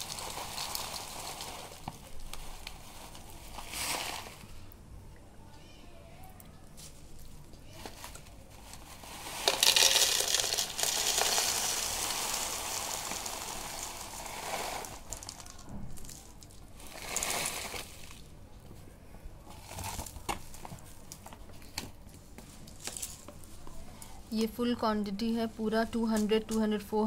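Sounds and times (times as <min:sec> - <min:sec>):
crystals pouring into plastic jar: 0:00.0 - 0:04.5, 0:08.0 - 0:18.3.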